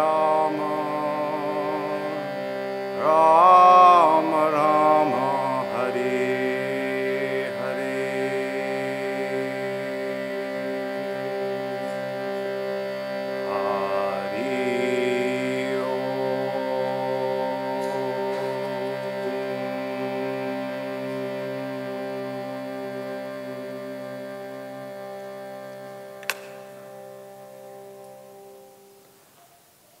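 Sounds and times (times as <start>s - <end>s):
harmonium drone chord: 0.0s - 29.4s
wavering higher melody note: 25.7s - 29.5s.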